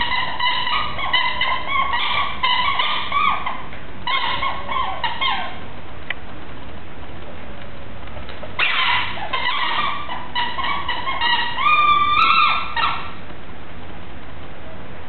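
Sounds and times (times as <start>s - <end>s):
puppy squeaking: 0.0s - 5.7s, 8.5s - 13.2s.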